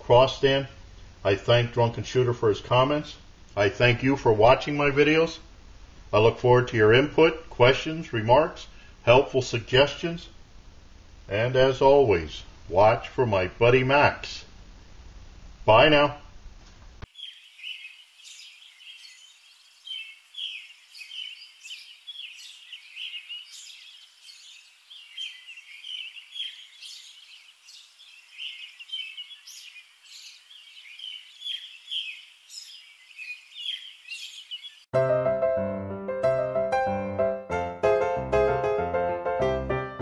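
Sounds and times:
small birds chirping: 0:17.0 - 0:34.9
piano music: 0:34.9 - 0:40.0.

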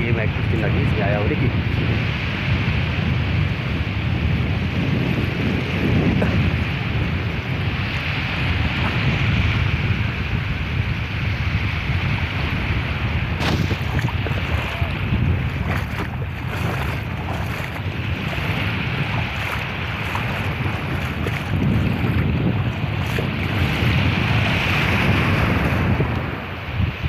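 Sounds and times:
small waves breaking on shore: 0:00.0 - 0:27.0
wind buffeting microphone: 0:00.0 - 0:27.0.

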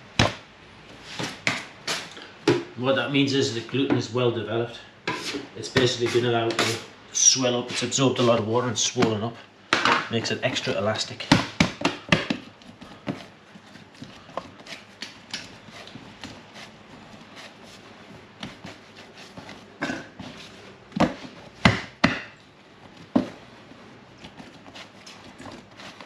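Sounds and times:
dough slapping on metal bench: 0:00.1 - 0:00.5, 0:01.1 - 0:02.7, 0:07.8 - 0:23.5.

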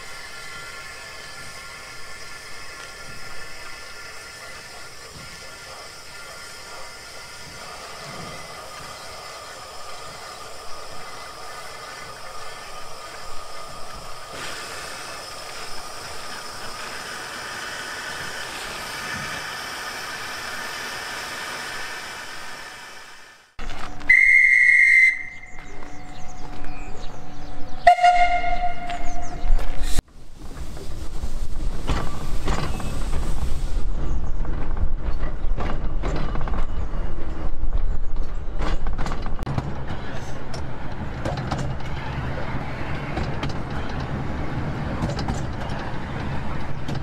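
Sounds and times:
steam locomotive hissing: 0:00.0 - 0:25.8, 0:27.8 - 0:34.2
railway carriage rumbling: 0:00.0 - 0:47.0.

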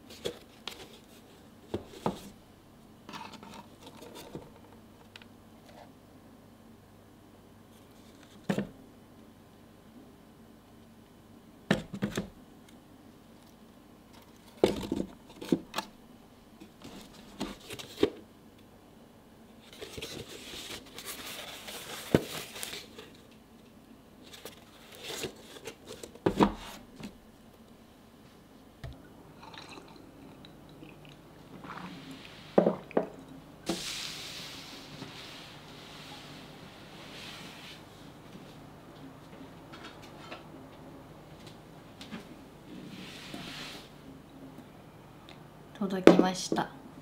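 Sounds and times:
soft brushing and scraping: 0:19.6 - 0:23.1, 0:31.6 - 0:32.9, 0:33.7 - 0:38.6, 0:42.7 - 0:43.9.

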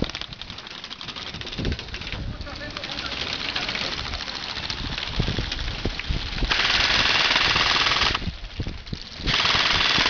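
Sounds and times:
airsoft rifle full-auto bursts: 0:06.5 - 0:08.2, 0:09.3 - 0:10.0.

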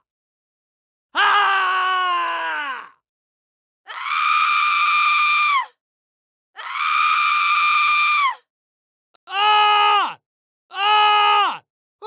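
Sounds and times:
person screaming: 0:01.2 - 0:03.0, 0:09.3 - 0:11.6.

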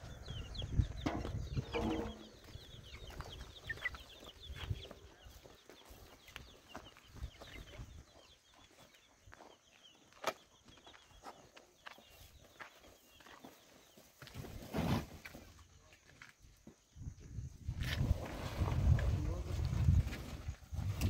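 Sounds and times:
chickens clucking: 0:00.0 - 0:14.1.

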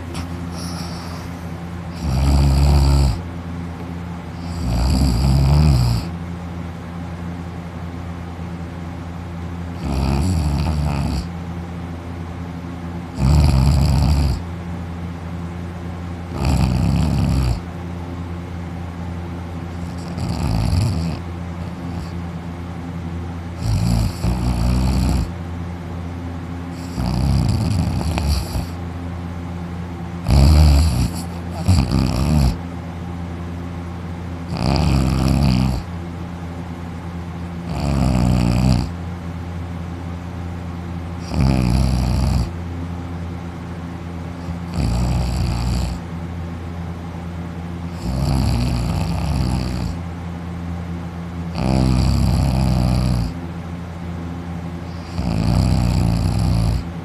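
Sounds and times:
man snoring loudly: 0:00.0 - 0:03.2, 0:04.4 - 0:06.1, 0:09.8 - 0:11.3, 0:13.1 - 0:14.4, 0:16.3 - 0:17.7, 0:19.8 - 0:22.2, 0:23.6 - 0:25.3, 0:26.8 - 0:28.8, 0:30.2 - 0:32.6, 0:34.4 - 0:35.9, 0:37.6 - 0:39.0, 0:41.2 - 0:42.6, 0:44.4 - 0:46.1, 0:47.9 - 0:50.0, 0:51.5 - 0:53.4, 0:54.9 - 0:56.9.

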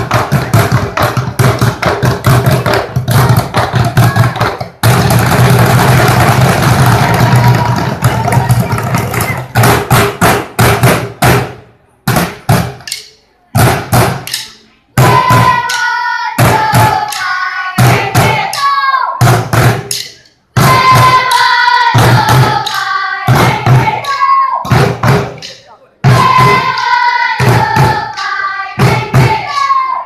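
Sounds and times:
drumsticks beating plastic barrels: 0:00.0 - 0:29.7
voices calling or singing: 0:02.7 - 0:05.0, 0:06.2 - 0:09.8, 0:14.3 - 0:19.3, 0:19.9 - 0:30.0.

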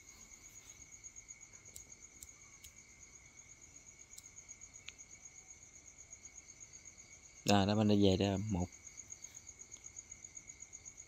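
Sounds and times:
soft ticks: 0:01.6 - 0:02.8, 0:04.1 - 0:05.0.

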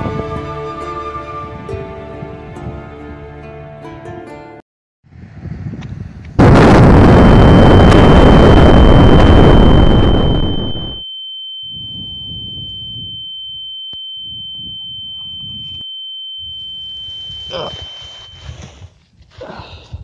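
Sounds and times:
explosion rumble: 0:06.4 - 0:11.0
high-pitched ringing tone: 0:07.2 - 0:18.8.

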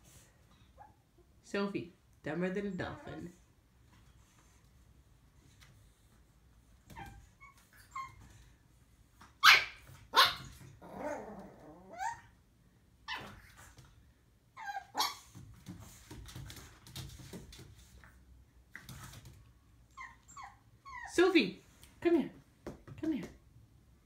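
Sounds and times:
puppy barking: 0:09.4 - 0:10.5
puppy growling: 0:10.8 - 0:12.2.

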